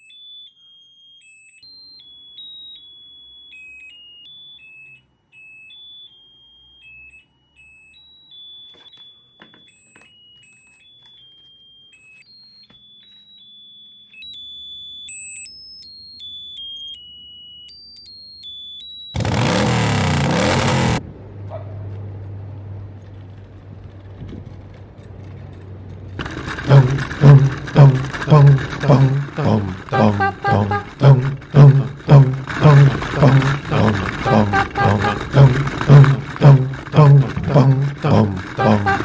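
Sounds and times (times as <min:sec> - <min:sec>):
loud thundering engine roar: 0:19.2 - 0:21.5, 0:26.2 - 0:39.0.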